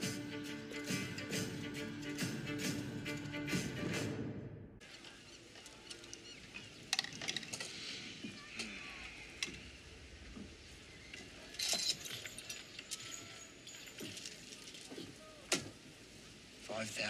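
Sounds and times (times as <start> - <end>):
small hard objects clinking: 11.5 - 15.1.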